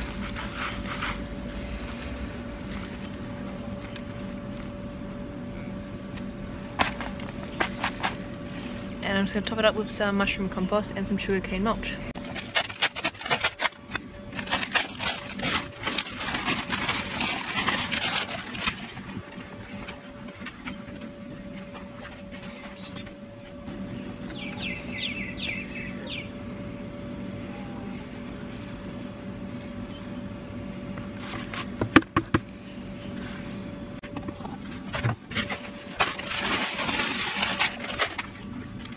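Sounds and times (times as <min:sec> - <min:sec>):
plastic bag crinkling: 0:00.0 - 0:04.1, 0:12.2 - 0:23.4, 0:34.6 - 0:38.9.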